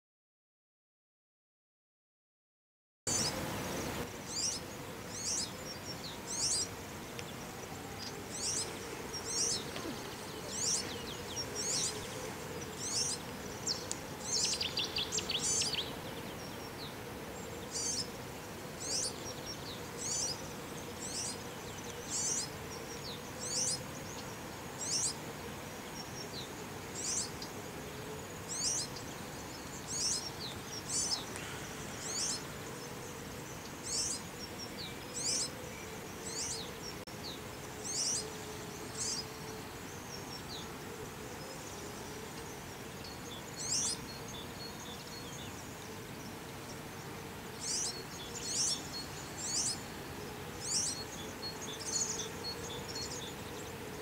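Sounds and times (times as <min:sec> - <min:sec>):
faint steady hum: 0:03.1 - 0:54.0
bird chirping: 0:04.3 - 0:18.1, 0:18.8 - 0:25.2, 0:28.5 - 0:32.5, 0:42.4 - 0:45.6, 0:47.6 - 0:49.8, 0:50.6 - 0:53.7.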